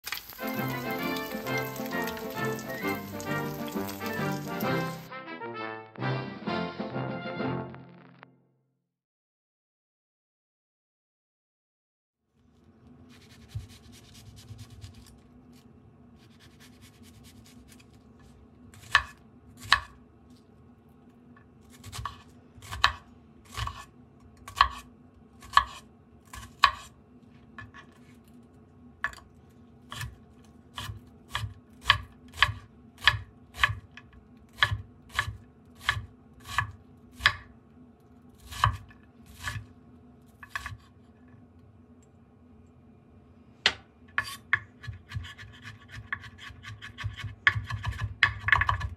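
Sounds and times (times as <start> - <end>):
knife chopping on cutting board: 18.8 - 20.0, 21.7 - 26.9, 29.9 - 33.8, 34.5 - 37.5, 38.4 - 39.7, 40.4 - 40.9, 43.7 - 48.9.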